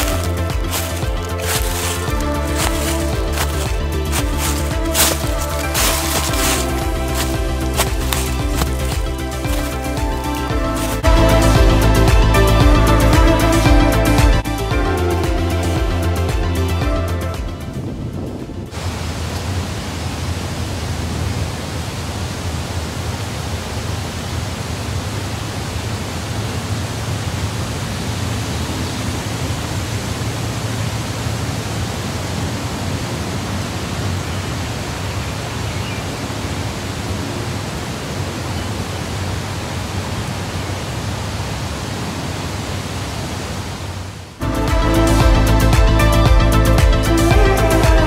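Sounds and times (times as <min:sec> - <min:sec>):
music: 0:00.0 - 0:18.8, 0:44.4 - 0:48.0
wind rushing on microphone: 0:17.4 - 0:24.5.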